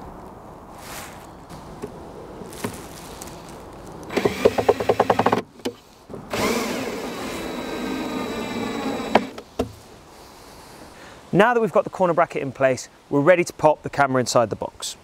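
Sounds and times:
drill driving screws: 4.1s - 5.5s, 6.3s - 9.4s.

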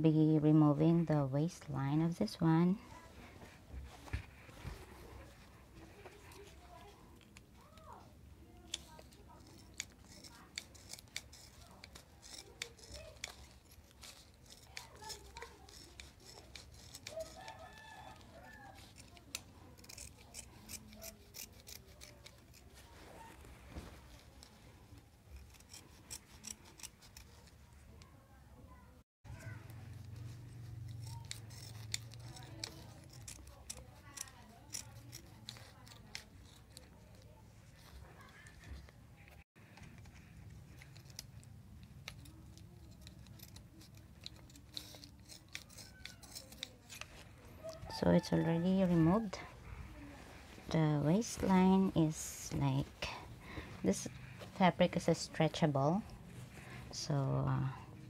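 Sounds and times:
scissors snipping fabric: 6.0s - 28.1s, 29.3s - 49.8s.

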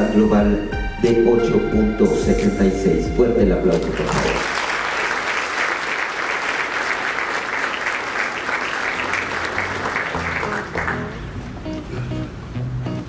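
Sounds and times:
quiet music: 0.0s - 4.4s
audience applauding: 3.8s - 11.3s.

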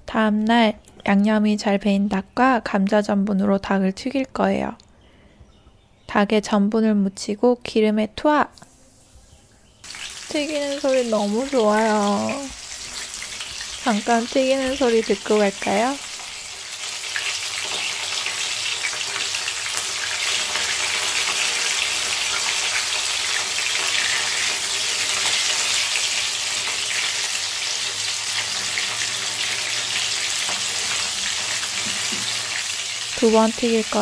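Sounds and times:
chicken deep-frying in oil: 9.8s - 34.0s.

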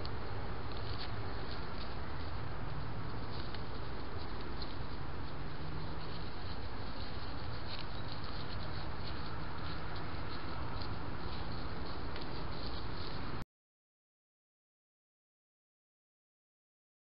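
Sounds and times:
microphone hiss: 0.0s - 13.4s.

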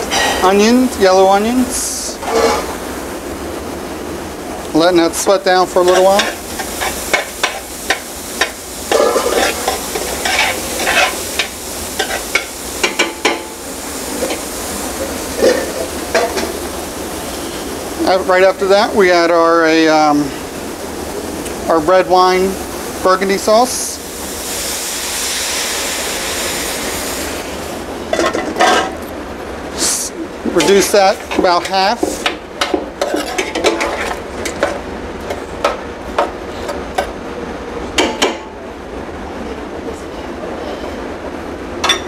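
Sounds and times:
onions sizzling in butter: 5.1s - 29.0s.

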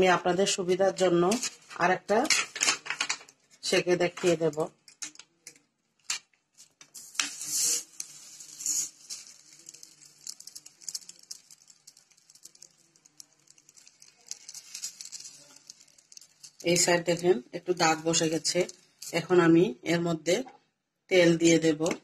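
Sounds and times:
plastic sheet rustling: 1.0s - 4.8s, 6.0s - 19.3s
flatbread crackling in pan: 1.2s - 19.3s.

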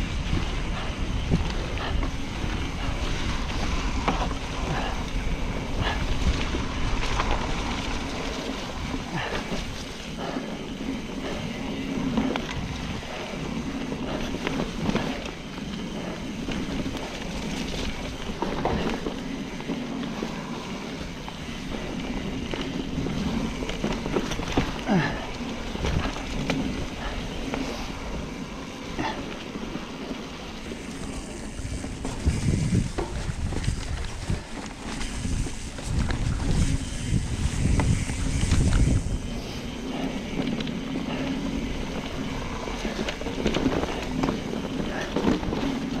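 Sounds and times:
bike rattling clicks and knocks: 0.0s - 46.0s
tyre noise on trail: 0.0s - 46.0s
wind buffeting microphone: 0.0s - 46.0s.

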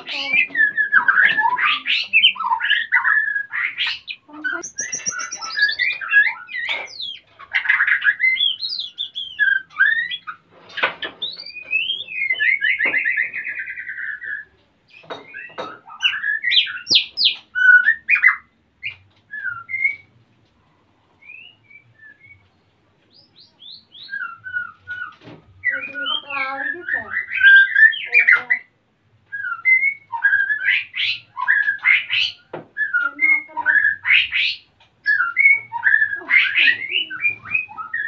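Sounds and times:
bird singing whistles and trills: 0.1s - 10.4s, 11.2s - 20.1s, 21.2s - 28.7s, 29.3s - 38.0s.

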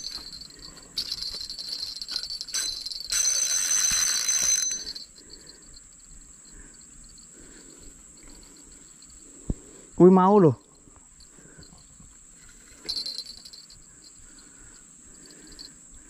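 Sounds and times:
insects buzzing with ringing tones: 0.0s - 16.0s
pulsing insect chorus: 0.0s - 16.0s
harsh insect buzz: 2.1s - 10.0s.

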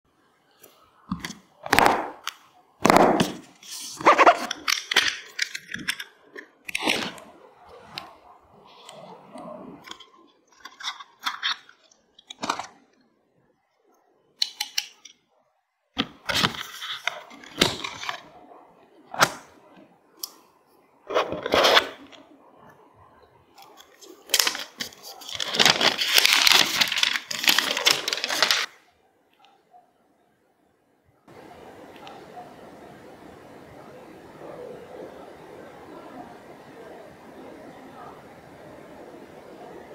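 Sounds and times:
packaging rustling: 16.0s - 18.4s, 21.1s - 22.2s, 23.6s - 28.7s.

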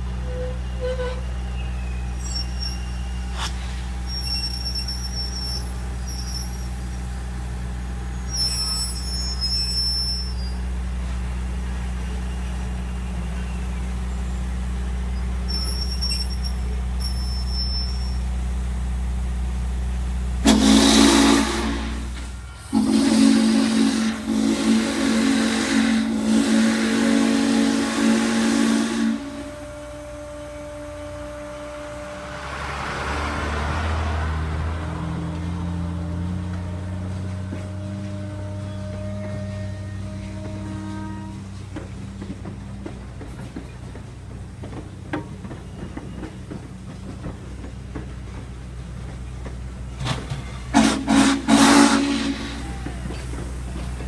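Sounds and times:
steam locomotive rumbling: 0.0s - 54.0s
steam whistle blasts: 0.2s - 1.3s, 20.4s - 32.3s, 37.6s - 41.5s, 50.7s - 53.2s.

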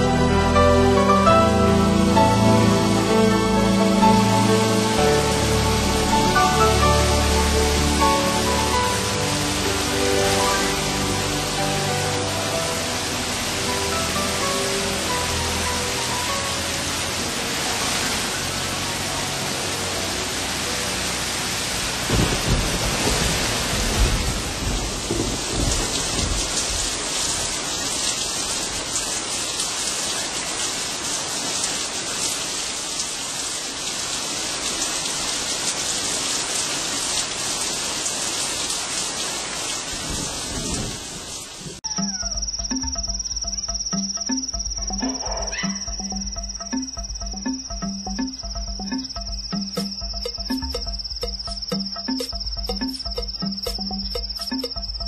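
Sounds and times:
rain falling: 0.0s - 55.0s
thunder rumbling: 22.1s - 26.9s.

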